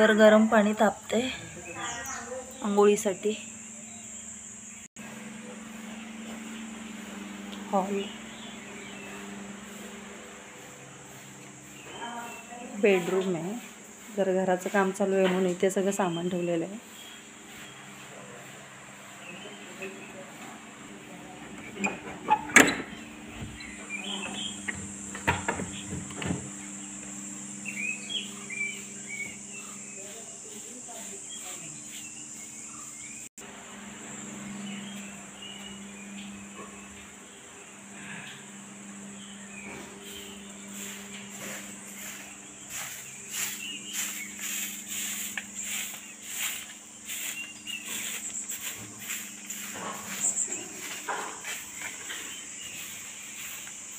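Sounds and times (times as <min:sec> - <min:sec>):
insects trilling: 0:00.0 - 0:53.9
small birds chirping: 0:00.0 - 0:53.9
footsteps on dry leaves: 0:05.2 - 0:15.2, 0:39.2 - 0:53.9.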